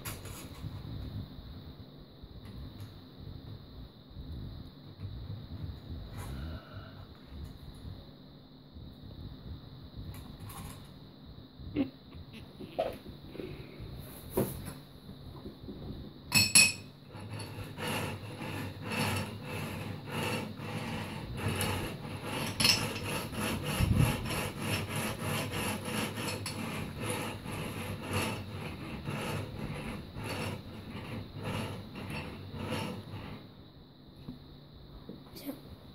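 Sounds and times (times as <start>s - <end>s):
glass tube rolling on steel wheels: 16.3s - 33.5s.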